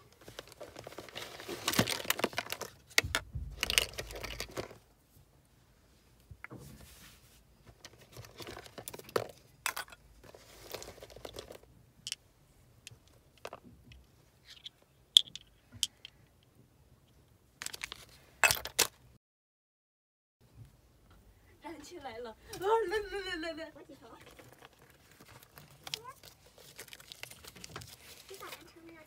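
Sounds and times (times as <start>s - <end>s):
packaging rustling and crinkling: 0.0s - 4.8s, 7.6s - 9.4s, 10.2s - 11.7s, 24.1s - 29.0s.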